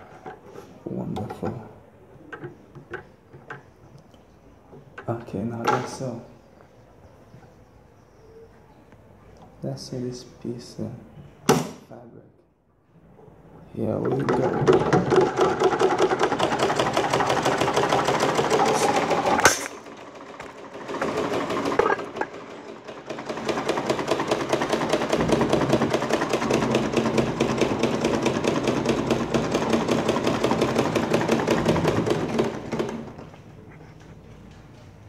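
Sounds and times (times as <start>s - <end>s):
treadle sewing machine clattering: 13.9s - 33.4s.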